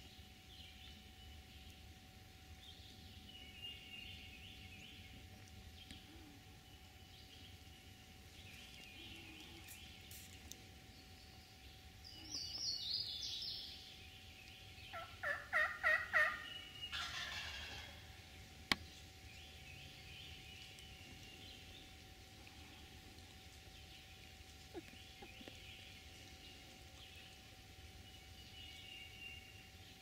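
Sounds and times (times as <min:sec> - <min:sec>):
songbirds chirping: 0:00.0 - 0:30.0
turkey gobbling: 0:14.9 - 0:18.0.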